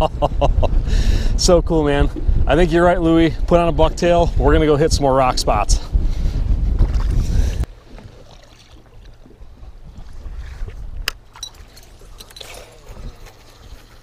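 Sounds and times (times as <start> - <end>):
wind on microphone: 0.0 - 14.0
water lapping against boat: 5.8 - 14.0.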